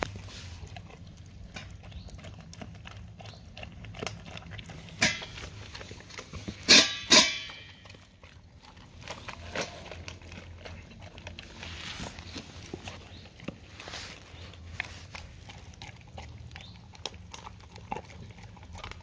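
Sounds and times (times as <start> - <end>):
dog chewing wet food: 0.0 - 19.0
steel bowl clanking: 4.9 - 5.6, 6.6 - 7.8.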